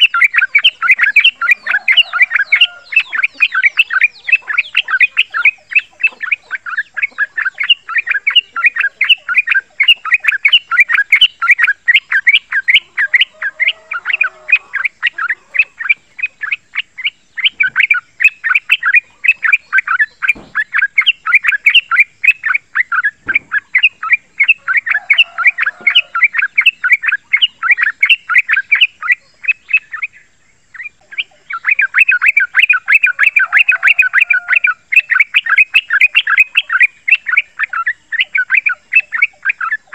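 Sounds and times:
bird singing rapid chatter: 0.0s - 39.9s.

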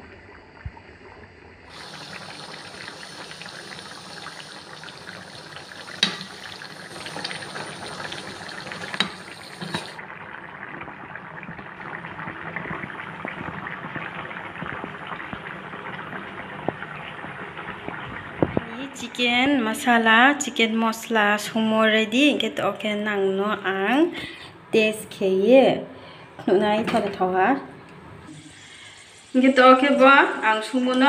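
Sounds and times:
curry bubbling at a boil: 1.7s - 18.7s.

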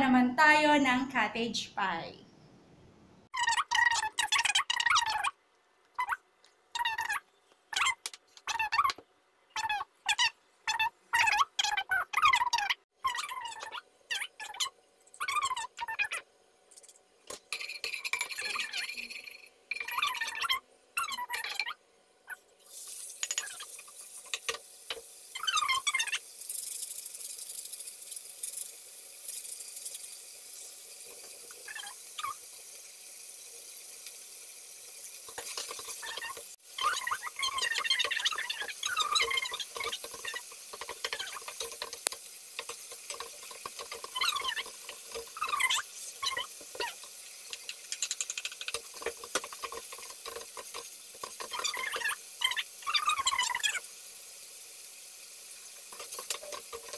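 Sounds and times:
meat sizzling in a wok: 22.6s - 56.9s
wooden spoon scraping a pan: 48.6s - 52.0s, 55.9s - 56.9s.

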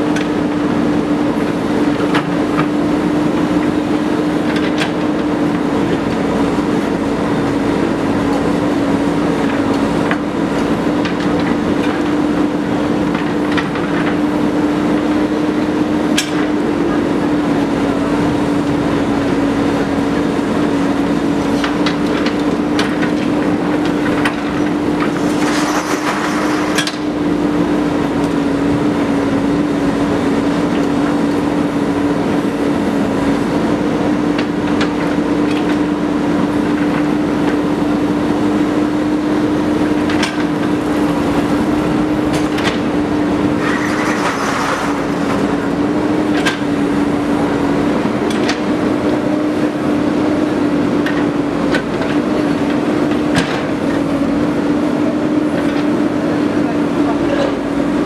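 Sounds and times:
diesel engine running: 0.0s - 58.0s
backhoe bucket clanking: 21.5s - 28.8s, 39.3s - 47.6s
rush of noise: 40.4s - 46.8s.

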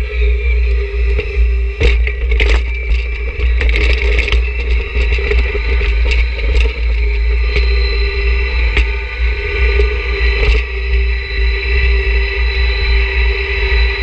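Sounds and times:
tractor diesel engine whining: 0.0s - 14.0s
knocks and scrapes: 1.2s - 7.7s.

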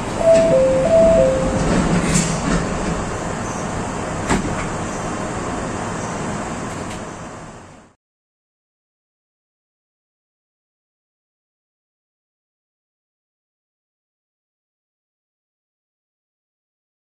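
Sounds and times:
train running noise: 0.0s - 7.9s
two-tone chime: 0.2s - 1.8s.

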